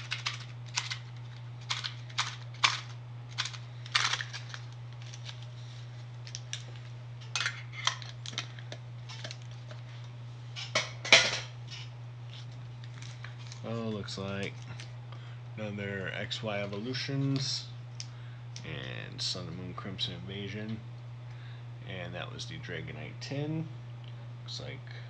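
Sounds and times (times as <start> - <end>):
packaging crinkling: 0.0 - 9.8, 12.3 - 14.9.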